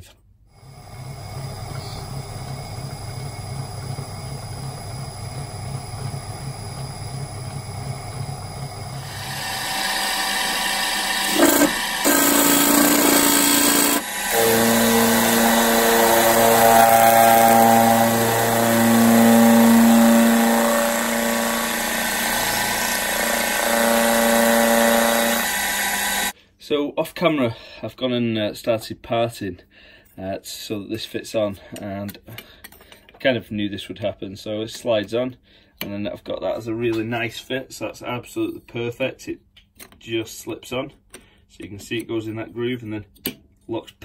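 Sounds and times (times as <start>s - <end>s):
metal lathe turning: 0.6s - 26.4s
milling machine drilling metal: 0.8s - 26.3s.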